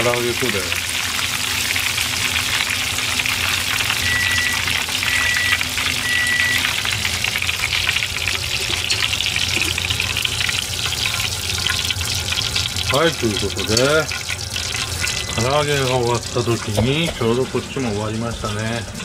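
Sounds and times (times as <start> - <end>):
chicken deep-frying in oil: 0.0 - 19.0
short electronic beeps: 4.0 - 6.7.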